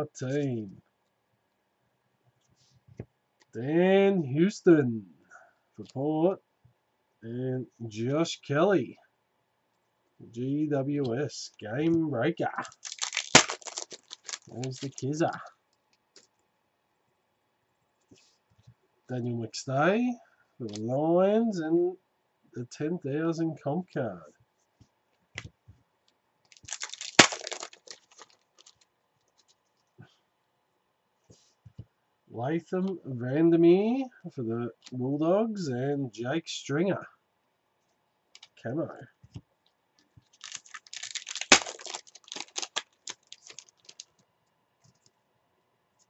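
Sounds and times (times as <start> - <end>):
cards clicking: 12.6 - 15.1, 26.6 - 28.8, 40.4 - 44.1
foil pack ripping and crinkling: 12.6 - 15.1, 26.5 - 28.8, 40.4 - 44.1
sharp crack: 12.6 - 15.2, 26.6 - 28.7, 40.4 - 44.0.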